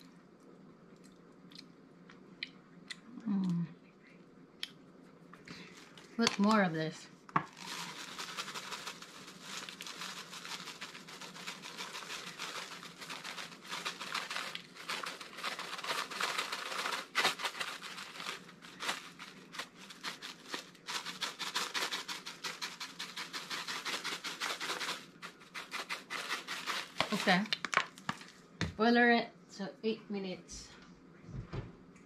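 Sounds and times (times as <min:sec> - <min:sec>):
seasoning rattling in shaker jar: 0:07.5 - 0:27.8.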